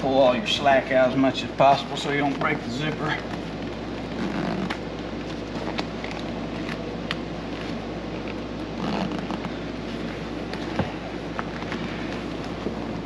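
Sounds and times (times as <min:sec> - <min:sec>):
fabric rustling and scraping: 0:03.1 - 0:13.0
zipper: 0:04.1 - 0:04.8, 0:08.7 - 0:09.6.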